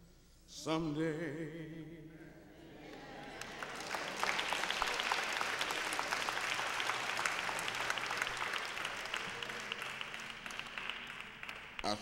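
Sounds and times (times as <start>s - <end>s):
crowd applauding: 2.9s - 12.0s.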